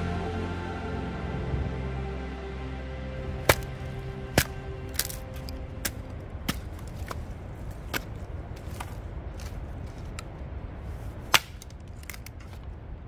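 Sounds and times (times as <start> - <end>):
background music: 0.0 - 8.0
low rumble: 0.0 - 13.0.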